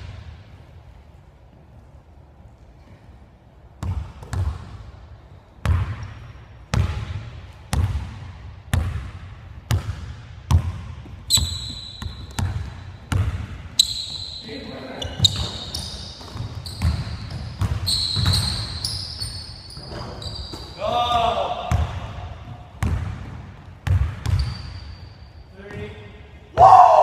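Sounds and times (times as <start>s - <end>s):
basketball bouncing on hardwood floor: 3.8s - 4.7s, 6.7s - 13.6s, 15.0s - 18.8s, 21.7s - 24.6s
sneakers squeaking on court: 9.7s - 26.2s.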